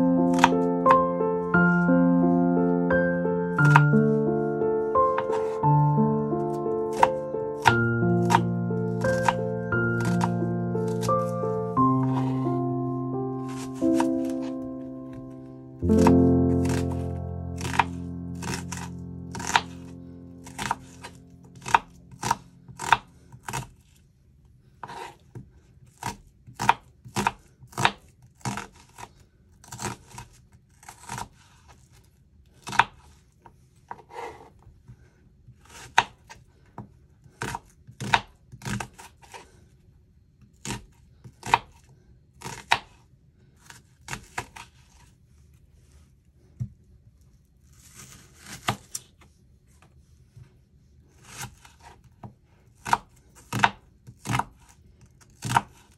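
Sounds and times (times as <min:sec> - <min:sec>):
knife chopping on cutting board: 0:00.3 - 0:01.0, 0:03.6 - 0:04.1, 0:05.1 - 0:05.6, 0:06.4 - 0:11.4, 0:13.5 - 0:14.5, 0:15.8 - 0:23.7, 0:26.0 - 0:29.1, 0:37.4 - 0:39.4, 0:51.2 - 0:55.9.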